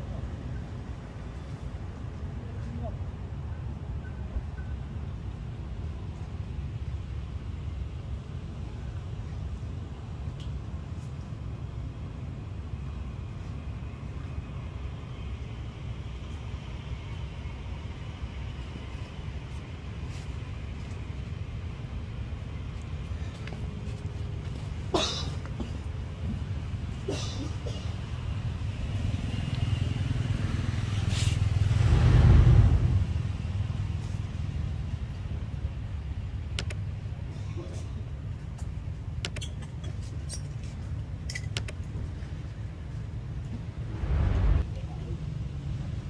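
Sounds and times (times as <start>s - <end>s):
low outdoor rumble: 0.0s - 46.0s
vehicle engine passing: 29.1s - 34.1s, 43.6s - 44.9s.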